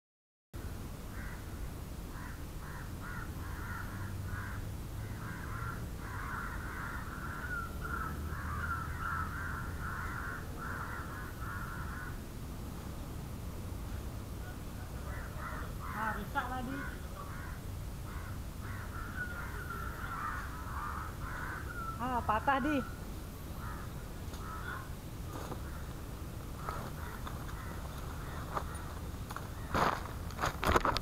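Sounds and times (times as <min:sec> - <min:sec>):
birds calling harshly: 0:02.1 - 0:12.2, 0:14.4 - 0:31.0
steady low rumble: 0:16.9 - 0:31.0.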